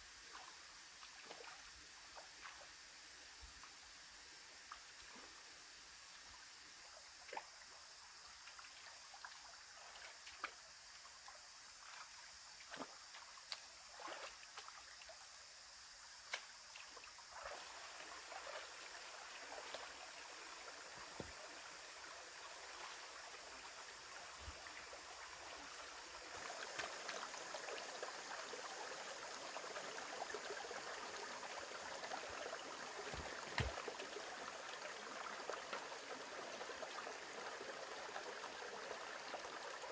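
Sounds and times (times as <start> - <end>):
stream trickling: 0.0 - 39.9
footsteps wading through water: 11.8 - 14.8.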